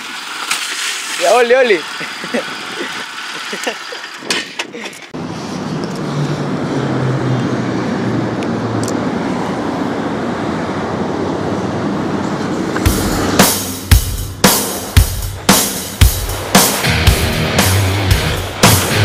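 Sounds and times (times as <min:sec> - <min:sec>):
motorcycle engine running: 0:12.8 - 0:19.0.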